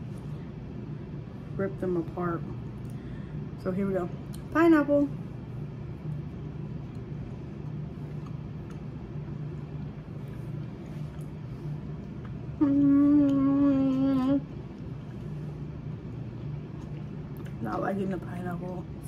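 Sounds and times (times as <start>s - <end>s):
low background hum: 0.0s - 19.0s
woman humming while eating: 12.4s - 14.6s.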